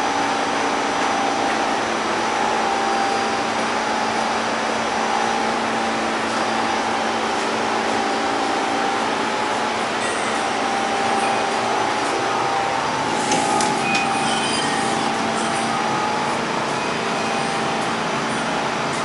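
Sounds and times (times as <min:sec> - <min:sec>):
subway train wheels in tunnel: 0:00.0 - 0:19.0
brief high squeaks: 0:13.2 - 0:15.1.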